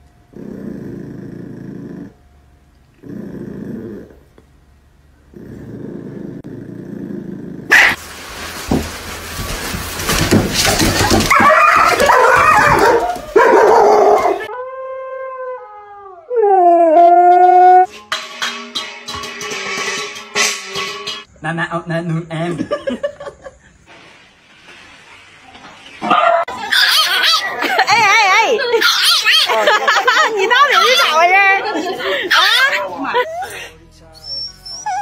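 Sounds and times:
small dog growling: 0:00.3 - 0:02.2, 0:03.0 - 0:04.4, 0:05.3 - 0:07.7
noisy dog sounds: 0:07.7 - 0:08.0, 0:10.8 - 0:14.5, 0:26.0 - 0:27.9, 0:28.7 - 0:29.9, 0:30.6 - 0:31.4
husky howling: 0:11.1 - 0:17.9.

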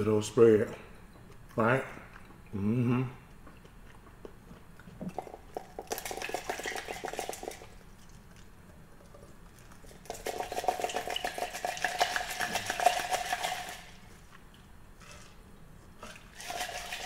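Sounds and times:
ice cubes clinking in a glass jar: 0:05.8 - 0:07.8, 0:10.1 - 0:13.9, 0:16.3 - 0:17.0.

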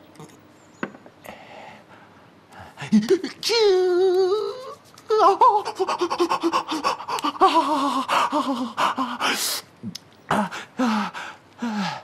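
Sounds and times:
man groaning: 0:02.8 - 0:09.2, 0:10.3 - 0:12.0
man wailing in pain: 0:02.9 - 0:09.2.

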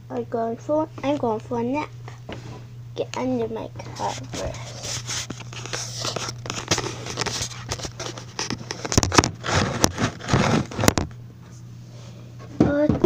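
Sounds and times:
steady low hum: 0:00.0 - 0:13.0
handling knocks and crackles: 0:03.8 - 0:11.2.

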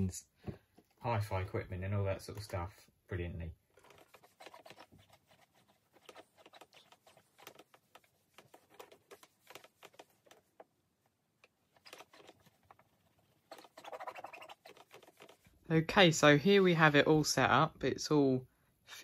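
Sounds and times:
rubbing plastic: 0:03.6 - 0:15.6.

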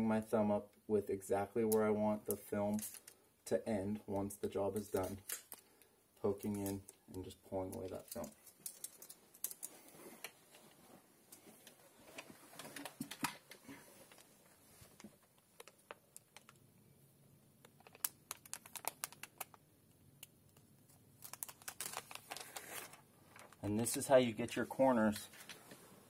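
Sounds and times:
window film crinkling: 0:21.2 - 0:24.1.

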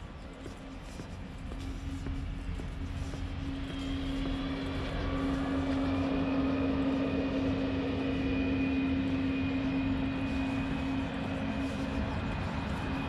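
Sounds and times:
engine drone: 0:00.0 - 0:13.0
faint high whine: 0:00.0 - 0:13.0.

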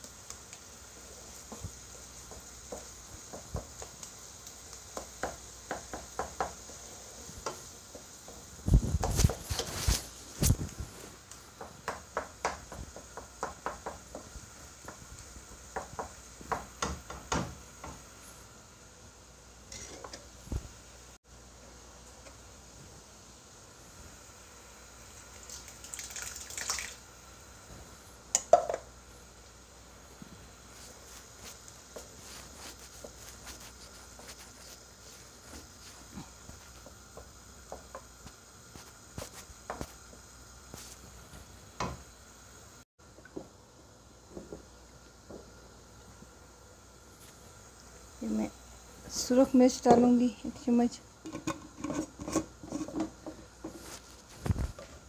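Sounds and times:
meat sizzling: 0:00.0 - 0:55.0
wooden spatula scraping wok: 0:00.8 - 0:18.5, 0:19.6 - 0:20.6, 0:30.2 - 0:41.5, 0:51.2 - 0:55.0.

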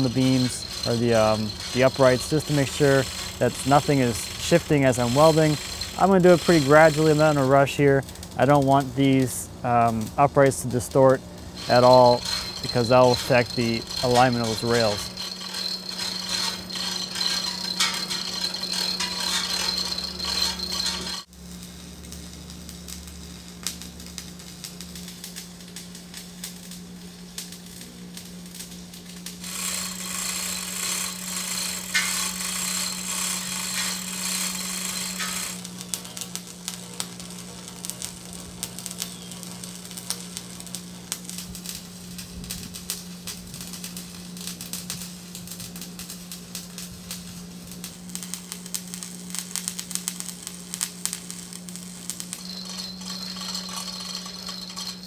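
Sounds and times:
chain hoist chain rattling: 0:00.0 - 0:07.6, 0:11.6 - 0:21.3, 0:29.4 - 0:35.7, 0:52.4 - 0:55.0
harsh hiss: 0:00.0 - 0:21.3, 0:29.4 - 0:35.6, 0:52.1 - 0:55.0
steady low hum: 0:00.0 - 0:21.3.

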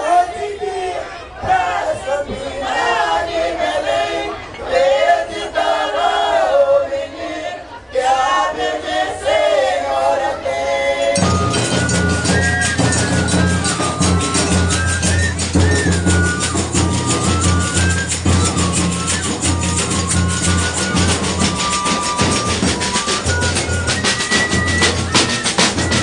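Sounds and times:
group singing: 0:00.0 - 0:26.0
folk band playing: 0:01.0 - 0:26.0
jingling hand percussion: 0:11.1 - 0:26.0
high melody: 0:11.2 - 0:26.0.

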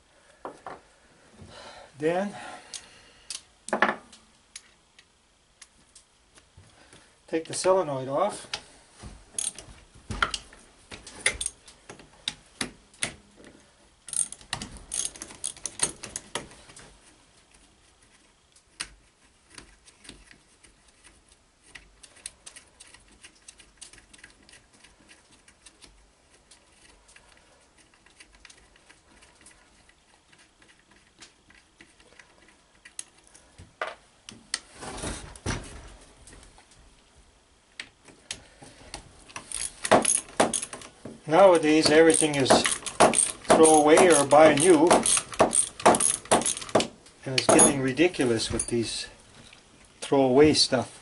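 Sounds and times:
metal clinks of tools and parts: 0:09.4 - 0:09.6, 0:39.4 - 0:40.9, 0:41.5 - 0:49.1
ratchet wrench clicking: 0:41.8 - 0:46.8.

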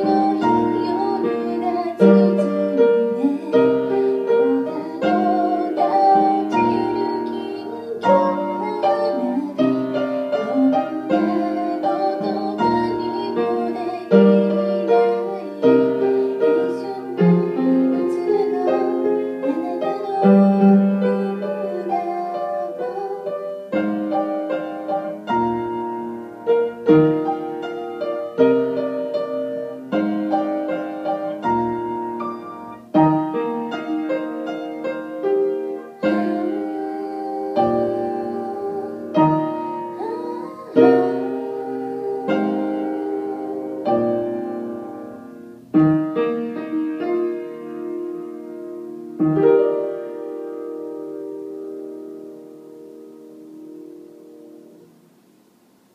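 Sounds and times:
woman singing: 0:00.0 - 0:45.2, 0:46.1 - 0:48.5
grand piano playing ballad: 0:00.0 - 0:55.1.

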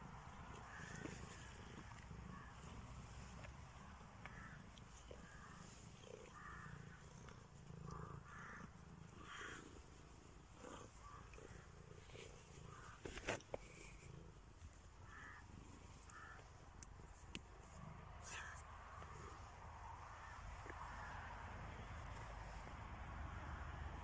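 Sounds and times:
cat purring faintly: 0:00.0 - 0:16.4.

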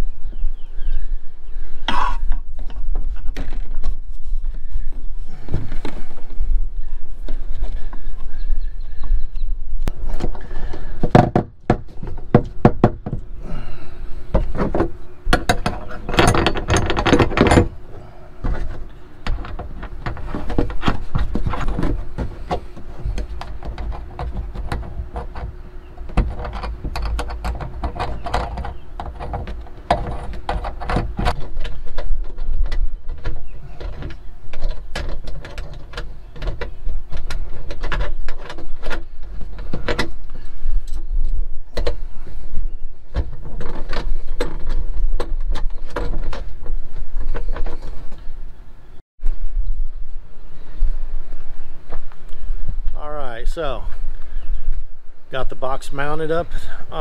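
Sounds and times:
metal hardware clicking and rattling: 0:14.4 - 0:17.8, 0:18.4 - 0:42.0.

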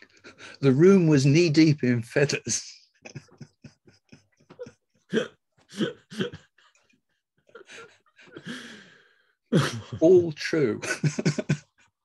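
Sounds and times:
men laughing: 0:02.9 - 0:08.8, 0:09.5 - 0:12.0.

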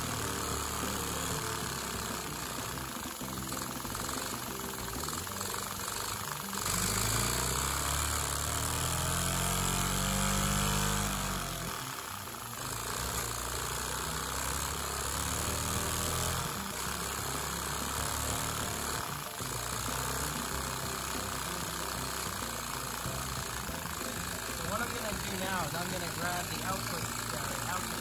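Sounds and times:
small vacuum engine running: 0:00.0 - 0:28.0.

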